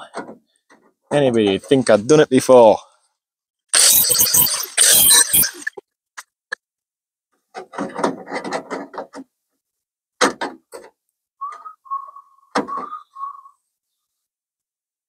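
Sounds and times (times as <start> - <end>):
sheet metal clattering and scraping: 7.6 - 9.2
person whistling: 11.4 - 13.6.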